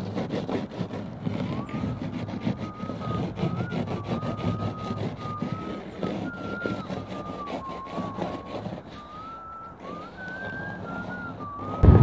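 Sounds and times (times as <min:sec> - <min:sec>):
fingers scraping frost off glass: 0:00.0 - 0:11.8
thin wavering whistle tone: 0:01.4 - 0:12.0
low engine hum: 0:09.5 - 0:12.0.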